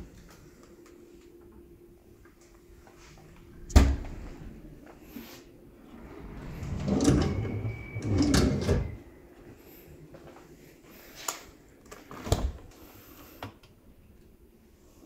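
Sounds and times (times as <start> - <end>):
faint drawer squeal: 6.6 - 9.1.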